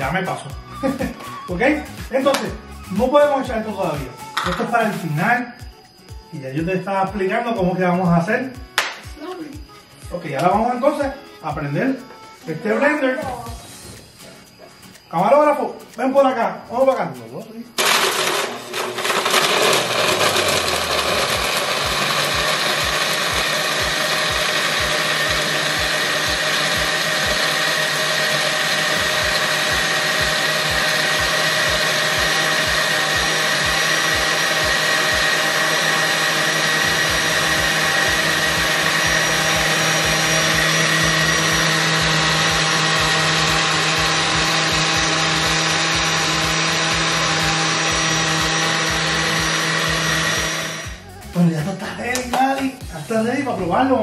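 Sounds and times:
blender crushing ice: 0:17.8 - 0:51.0.

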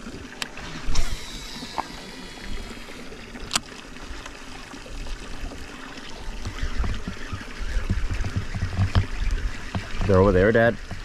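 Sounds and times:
waves lapping against boat hull: 0:00.0 - 0:11.0
low rumbles and knocks: 0:06.4 - 0:11.0.

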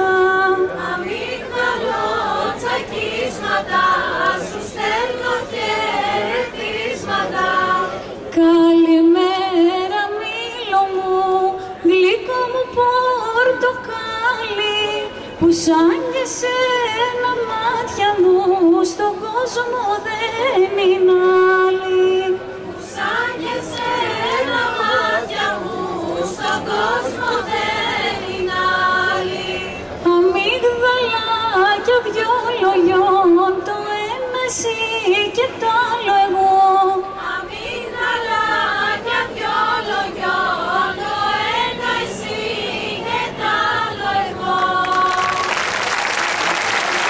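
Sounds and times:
people singing along: 0:00.0 - 0:08.2, 0:22.8 - 0:29.8, 0:37.0 - 0:46.1
applause: 0:44.6 - 0:47.0.

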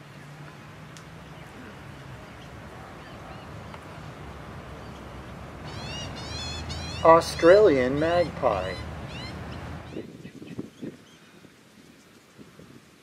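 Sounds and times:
magpie warbling song: 0:04.8 - 0:10.0.

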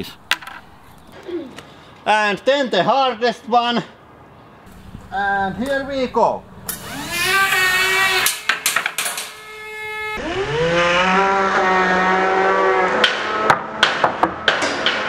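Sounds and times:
fidget spinner whining: 0:06.6 - 0:08.5
pieces banging on steel: 0:08.2 - 0:09.5.

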